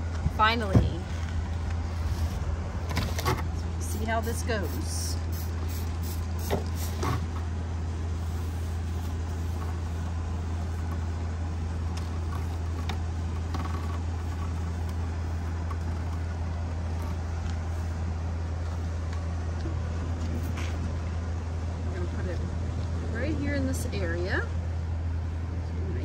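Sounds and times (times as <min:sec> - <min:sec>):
low engine hum: 0:00.0 - 0:26.0
spray bottle sprays: 0:04.0 - 0:07.2.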